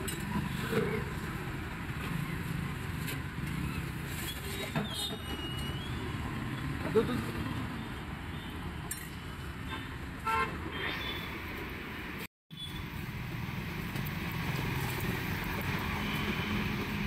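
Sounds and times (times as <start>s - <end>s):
road traffic: 0.0s - 17.0s
vehicle horn toot: 10.2s - 10.5s.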